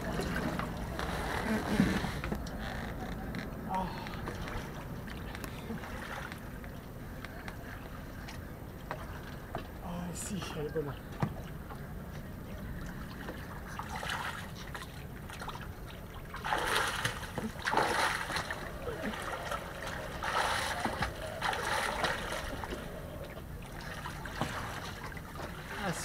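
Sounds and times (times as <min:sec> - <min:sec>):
arms splashing water: 0:12.8 - 0:26.0.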